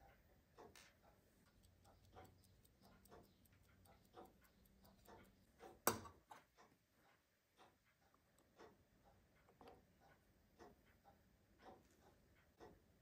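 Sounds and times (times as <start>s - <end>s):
clockwork ticking: 1.4s - 5.9s.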